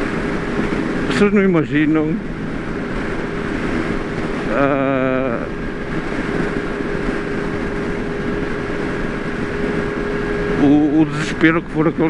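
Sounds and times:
wind on microphone: 0:00.0 - 0:12.0
wavering voice-like tone: 0:04.5 - 0:05.5.

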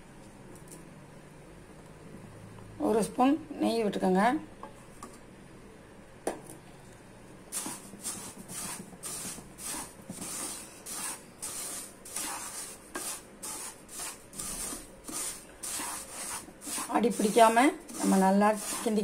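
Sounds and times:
wooden spatula scraping in pan: 0:07.5 - 0:19.0.

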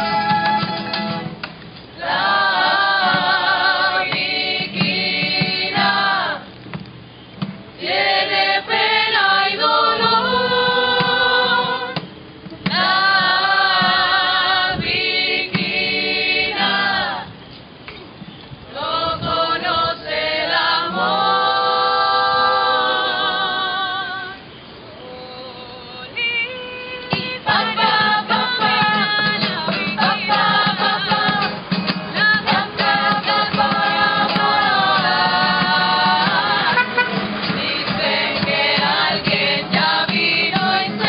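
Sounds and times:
guitars and plucked strings: 0:00.0 - 0:07.8, 0:27.0 - 0:41.0
chorus singing with vibrato: 0:02.0 - 0:06.6, 0:07.8 - 0:12.0, 0:12.6 - 0:17.4, 0:18.7 - 0:41.0.

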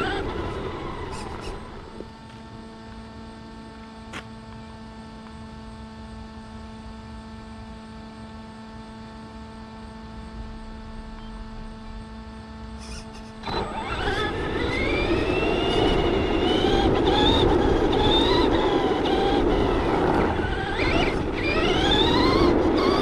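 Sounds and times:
toy truck rolling: 0:00.0 - 0:02.1, 0:12.8 - 0:23.0
electric motor whine: 0:00.0 - 0:23.0
steady hum: 0:00.0 - 0:23.0.

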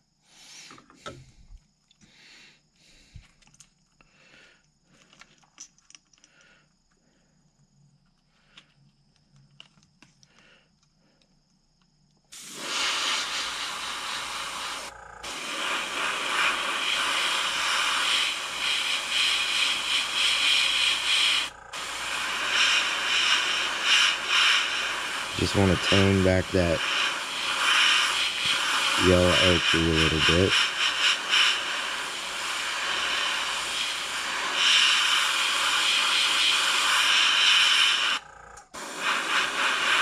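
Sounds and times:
small handling clicks: 0:05.0 - 0:06.5, 0:08.1 - 0:12.2
airbrush spraying hiss: 0:12.3 - 0:38.2, 0:38.8 - 0:40.0.

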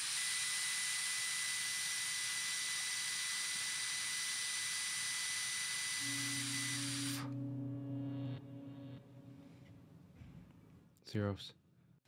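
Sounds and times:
low steady hum: 0:06.0 - 0:10.8.

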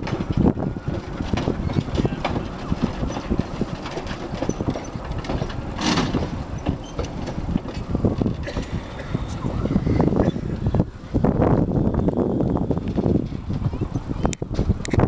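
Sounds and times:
steam locomotive rods clanking: 0:00.0 - 0:09.4, 0:12.6 - 0:15.0.

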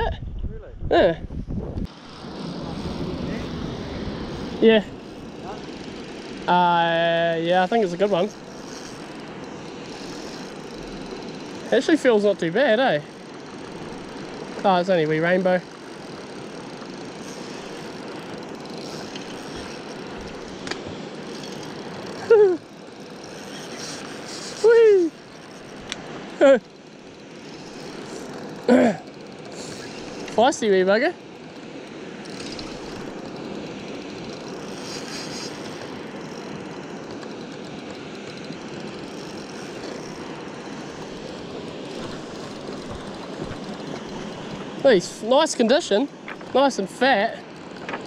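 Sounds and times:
wind buffeting microphone: 0:00.0 - 0:05.8
fine high clicking: 0:01.8 - 0:48.0
fishing reel whirring: 0:01.8 - 0:48.0
person exclaiming: 0:22.2 - 0:22.6, 0:24.5 - 0:25.2, 0:26.4 - 0:26.6, 0:28.7 - 0:29.1.

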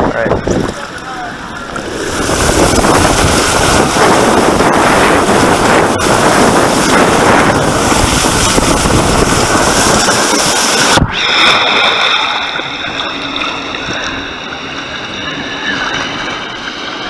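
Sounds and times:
water rushing over slide: 0:00.0 - 0:17.0
wind rushing on microphone: 0:00.0 - 0:17.0
water spraying hiss: 0:01.8 - 0:17.0
splash into water: 0:06.2 - 0:14.0.

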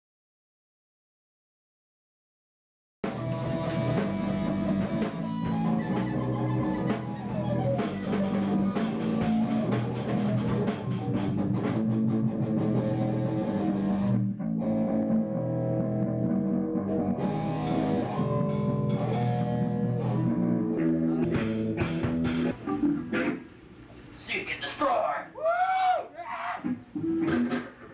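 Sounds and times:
drum kit playing: 0:03.0 - 0:15.1, 0:15.9 - 0:23.7, 0:26.6 - 0:27.9
electric guitars: 0:03.0 - 0:24.2, 0:26.6 - 0:27.9.

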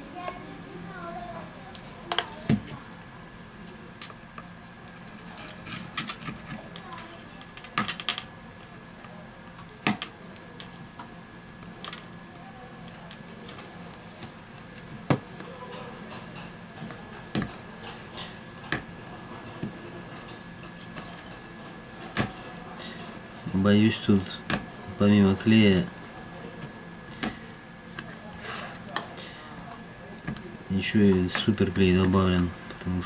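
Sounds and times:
steady background hum: 0:00.0 - 0:33.0.

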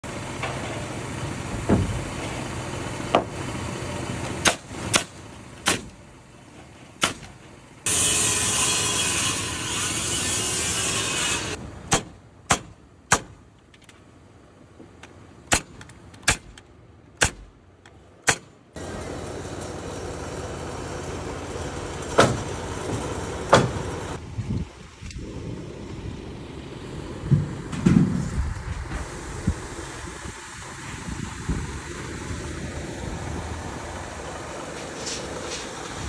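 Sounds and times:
nail gun firing: 0:04.4 - 0:06.0, 0:07.0 - 0:07.4, 0:11.9 - 0:13.4, 0:15.5 - 0:16.6, 0:17.2 - 0:17.5, 0:18.2 - 0:18.6.

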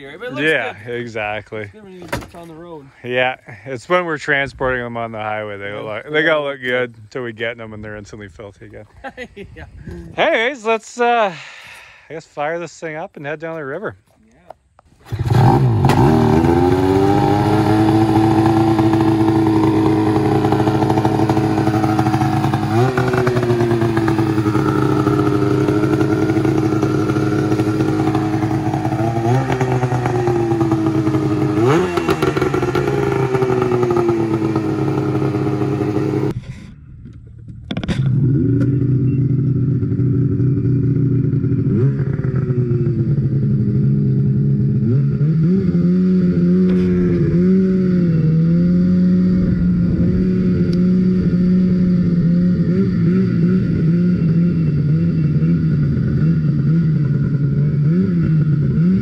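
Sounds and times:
engine throttle blips: 0:15.0 - 0:36.4, 0:37.1 - 0:59.0
snowmobile engine idling: 0:16.1 - 0:36.4, 0:38.1 - 0:44.7.

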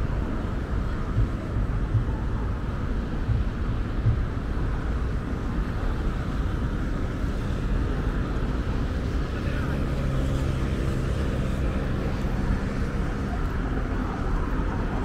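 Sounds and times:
road traffic hum: 0:00.0 - 0:15.0
wind buffeting microphone: 0:00.0 - 0:15.0
low thumps: 0:01.0 - 0:04.6.

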